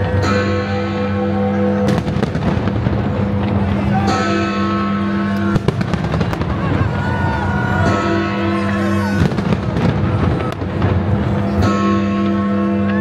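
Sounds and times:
music with long held notes: 0.0 - 13.0
fireworks bursting and crackling: 1.9 - 4.0, 5.4 - 7.4, 9.1 - 11.7.

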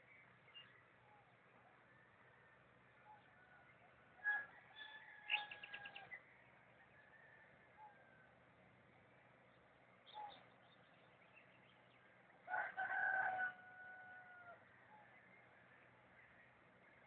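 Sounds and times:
faint small birds chirping: 0.0 - 12.7
rooster crowing: 4.2 - 6.1, 12.5 - 14.7.

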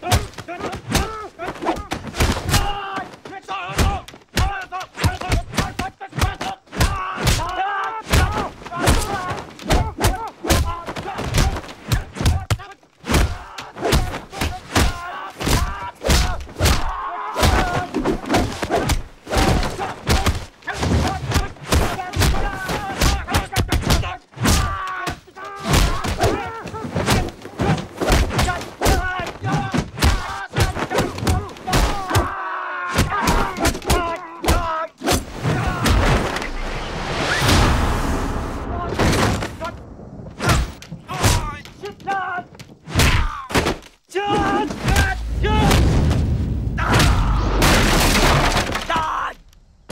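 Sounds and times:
fighters grunting and shouting: 0.0 - 36.6, 40.4 - 45.9, 46.7 - 49.4
punch and kick impacts: 8.1 - 24.8, 25.6 - 32.3.

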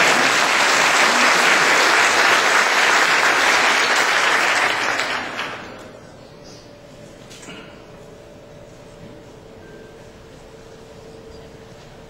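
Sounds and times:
congregation applauding: 0.0 - 6.0.

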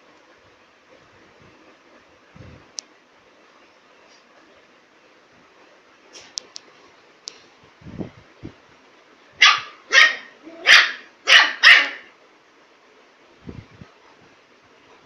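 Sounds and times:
puppy barking: 9.4 - 12.1.

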